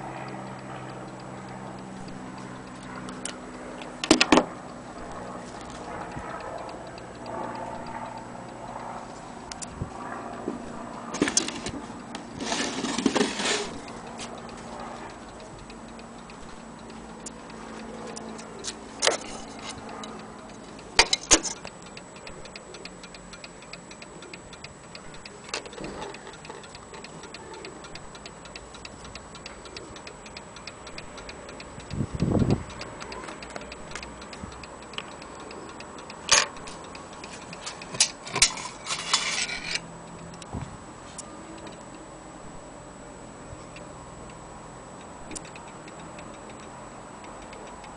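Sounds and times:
mantel clock ticking: 0.0 - 40.5, 43.6 - 47.9
knocks and clicks: 3.9 - 4.5, 21.0 - 21.8.

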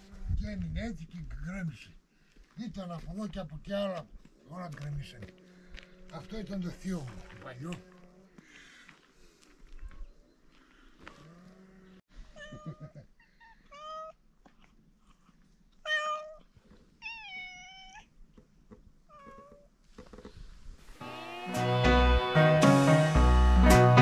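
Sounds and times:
cats meowing: 12.2 - 14.2, 15.8 - 18.1, 21.0 - 22.6.

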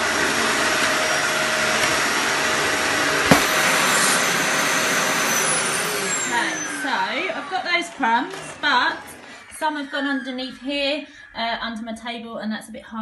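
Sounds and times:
vacuum cleaner motor whine: 0.0 - 9.4
sharp knock: 3.3 - 3.6.

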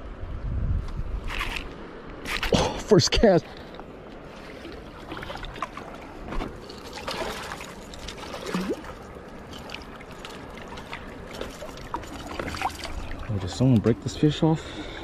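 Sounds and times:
fish splashing and thrashing in water: 4.2 - 13.9.

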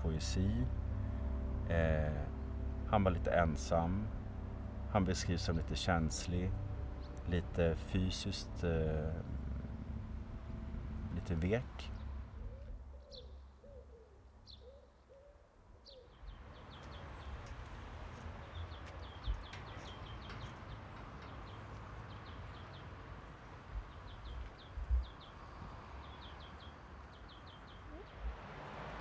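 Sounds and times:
steady background hush: 0.0 - 13.1
low thumps: 0.6 - 12.8
small birds chirping: 11.2 - 28.4
dove cooing: 12.4 - 15.4.

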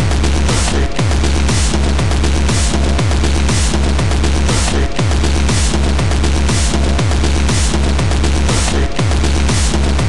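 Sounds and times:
deep steady bass: 0.0 - 10.0
heavy kick drum: 0.0 - 10.0.

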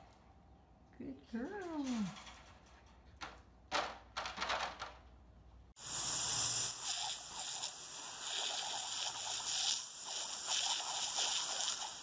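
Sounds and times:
hose water hissing and splashing: 5.8 - 12.0.

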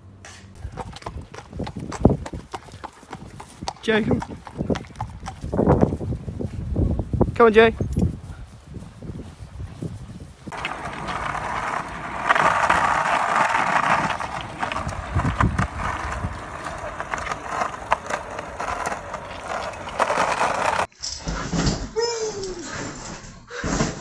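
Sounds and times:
skateboard wheels rolling on asphalt: 0.6 - 7.4, 8.1 - 20.9
skateboard clicks: 10.5 - 20.9.

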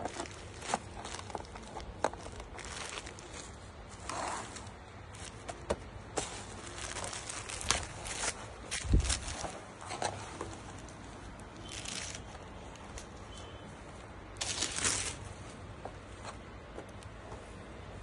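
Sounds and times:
fabric rustling swishes: 2.4 - 16.5.

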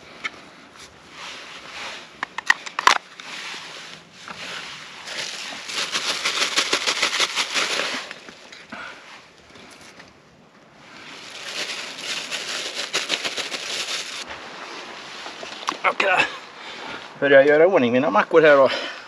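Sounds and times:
crackling of burning sticks: 0.0 - 14.3
dry kindling snapping: 2.2 - 3.3.

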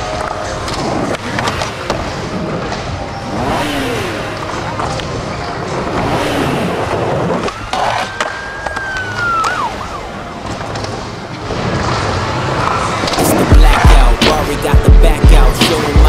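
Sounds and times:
skateboard wheels rolling on concrete: 0.0 - 16.0
skateboard clicks and clacks: 7.2 - 9.7.

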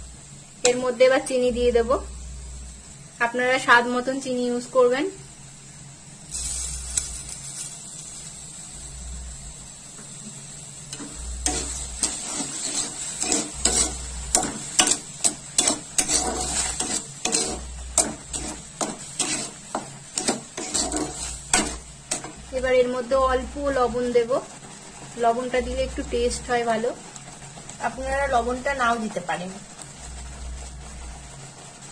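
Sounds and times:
hiss of bubbling pulp: 6.0 - 14.4, 24.6 - 31.9
spatula scraping and knocking pan: 10.9 - 23.0.

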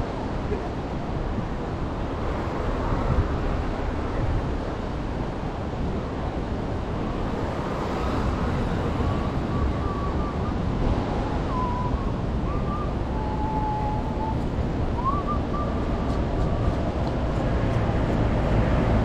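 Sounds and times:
wind buffeting microphone: 0.0 - 19.0
sea surf washing on beach: 0.1 - 12.5
faint whistle-like chirps: 11.4 - 14.4.

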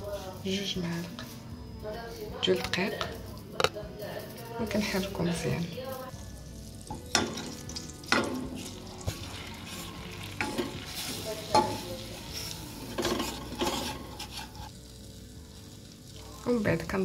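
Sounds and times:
butter sizzling: 4.6 - 17.0
wooden spatula scraping saucepan: 8.2 - 14.8.

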